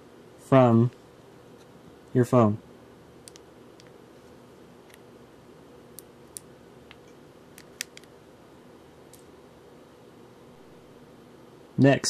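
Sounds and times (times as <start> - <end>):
faint steady hum: 0.0 - 12.0
sharp plastic clicks: 6.0 - 8.1.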